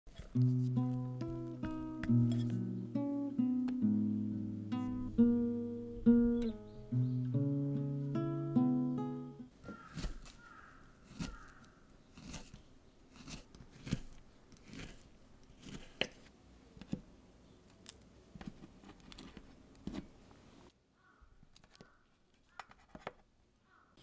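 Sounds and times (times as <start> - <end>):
knife slicing banana: 9.7 - 16.2.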